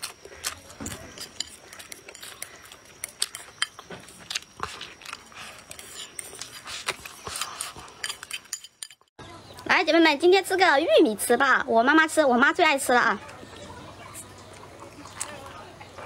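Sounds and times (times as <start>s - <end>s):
chewing: 0.0s - 9.0s, 13.2s - 16.0s.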